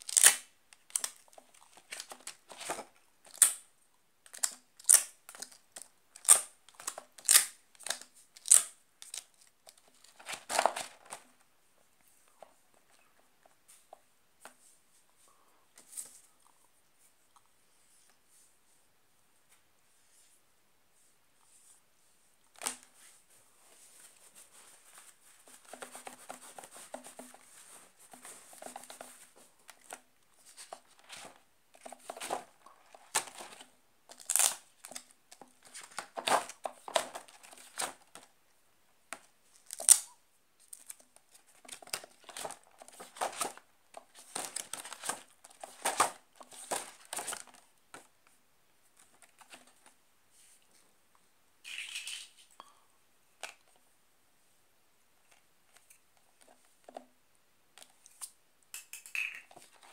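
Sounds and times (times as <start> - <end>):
plastic-coated cards rustling: 0.0 - 3.6, 4.3 - 11.5, 24.0 - 38.3, 39.1 - 48.1.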